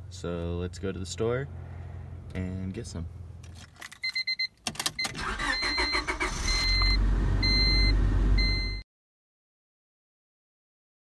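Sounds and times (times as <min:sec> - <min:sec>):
car engine cranking and starting: 0:03.4 - 0:08.8
dashboard warning chime: 0:04.0 - 0:08.8.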